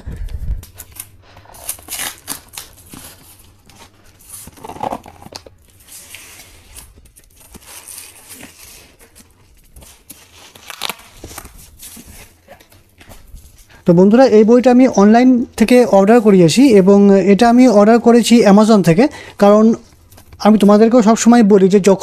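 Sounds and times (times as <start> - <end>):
plastic wrap crinkling: 0.0 - 21.3
packing tape peeling: 0.2 - 13.3
cardboard ripping: 0.7 - 13.3.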